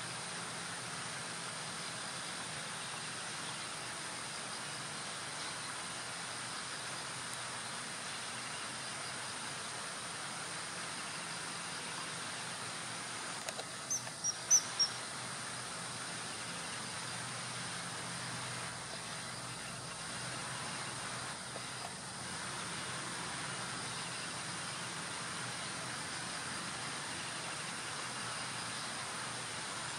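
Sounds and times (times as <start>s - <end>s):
steady outdoor hiss: 0.0s - 29.9s
high piping bird calls: 13.8s - 15.0s.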